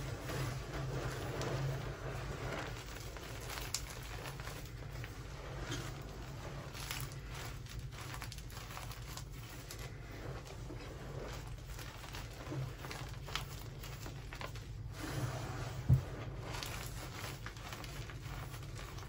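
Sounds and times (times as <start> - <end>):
low steady hum: 0.0 - 19.0
hands crumbling chalk: 0.1 - 14.6.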